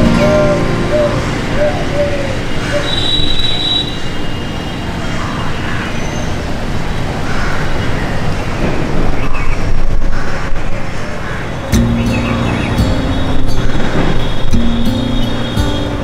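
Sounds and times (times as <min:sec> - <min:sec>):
road traffic rumbling: 0:00.0 - 0:16.0.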